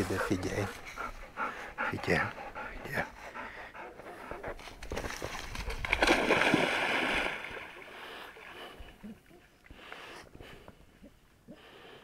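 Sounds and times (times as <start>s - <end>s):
water sloshing: 4.6s - 9.0s
dog splashing into water: 4.8s - 7.9s.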